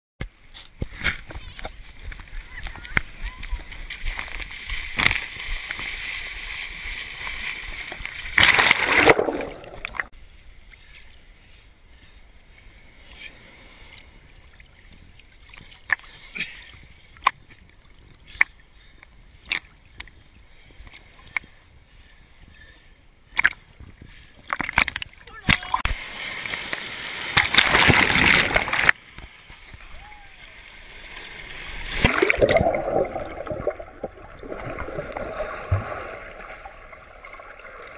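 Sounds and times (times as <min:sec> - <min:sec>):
waves surging and sloshing: 0:00.3 - 0:37.9
water lapping: 0:01.4 - 0:37.9.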